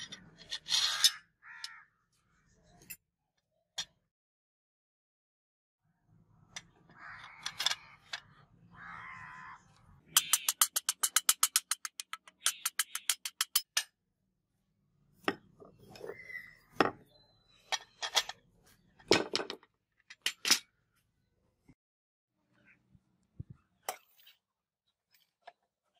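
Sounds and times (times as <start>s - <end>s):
crow cawing: 0.9s - 2.1s, 6.9s - 9.9s.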